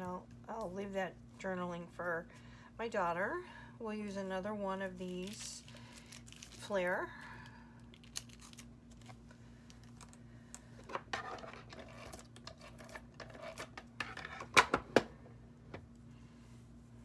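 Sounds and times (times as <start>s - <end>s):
plastic packet rustling: 5.0s - 6.8s, 7.8s - 10.2s.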